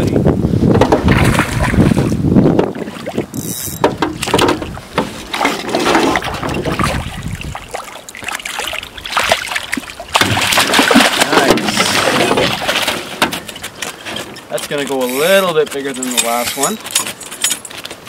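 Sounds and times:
knocks on a metal boat: 3.8 - 5.1
fish splashing in water: 4.3 - 13.2.

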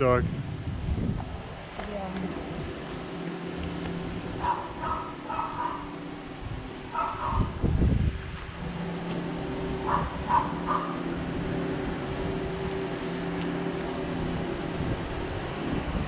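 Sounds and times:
low mechanical hum: 0.0 - 16.0
dog barking: 4.4 - 6.0, 6.9 - 7.6, 9.8 - 11.0.

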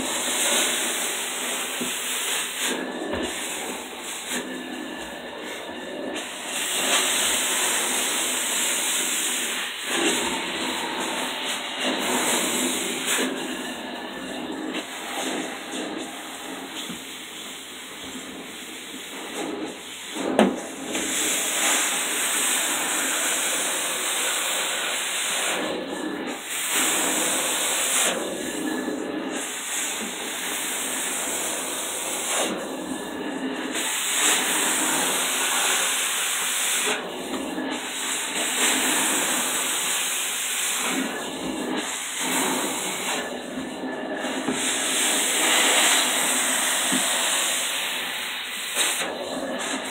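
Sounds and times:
carpet cleaner suction hissing: 0.0 - 49.9.

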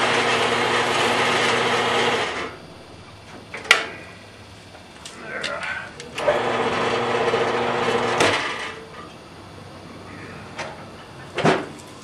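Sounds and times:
band saw cutting steel: 0.0 - 2.6, 6.2 - 8.8.

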